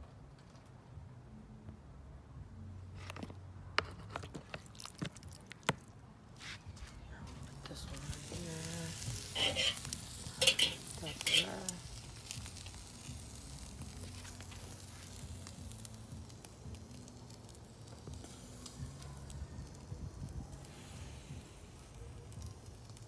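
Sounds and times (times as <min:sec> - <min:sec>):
ribs sizzling on a grill: 0:07.3 - 0:23.0.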